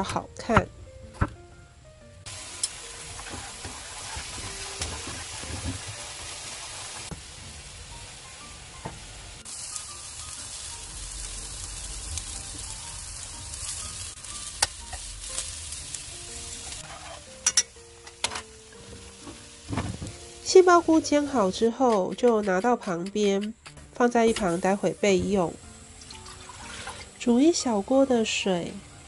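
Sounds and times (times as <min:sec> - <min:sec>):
mushrooms sizzling in oil: 0:02.3 - 0:23.4, 0:24.0 - 0:29.0
tongs tapping a pan: 0:17.0 - 0:18.5, 0:21.7 - 0:24.5.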